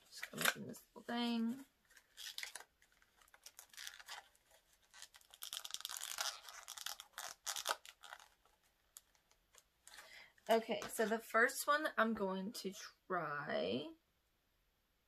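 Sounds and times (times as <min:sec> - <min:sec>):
packaging rustling: 0:01.8 - 0:10.6.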